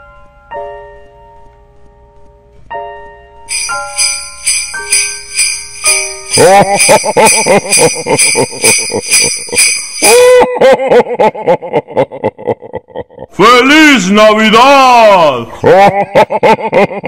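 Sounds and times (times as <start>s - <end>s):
electronic christmas melody: 2.8s - 11.4s
sleigh bells jingling: 3.5s - 10.6s.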